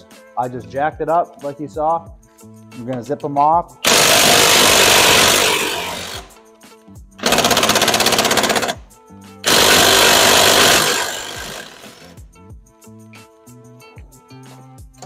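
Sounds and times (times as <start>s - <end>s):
impact wrench hammering: 3.8s - 6.4s, 7.2s - 8.8s, 9.5s - 12.1s.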